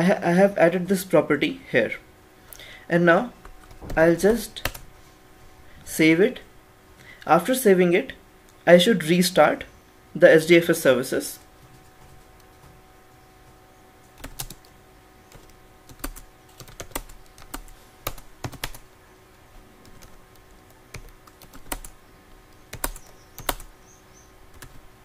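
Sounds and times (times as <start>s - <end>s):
keyboard typing clicks: 13.4s - 14.7s, 15.3s - 18.8s, 19.8s - 23.7s, 24.5s - 24.8s.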